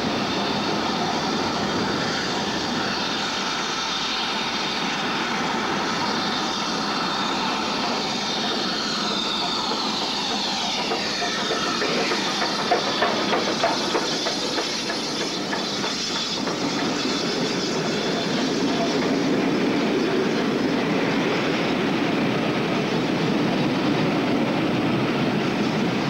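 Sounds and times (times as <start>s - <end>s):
steam train rushing past: 0.0s - 26.0s
train wheel clicks: 7.7s - 19.3s.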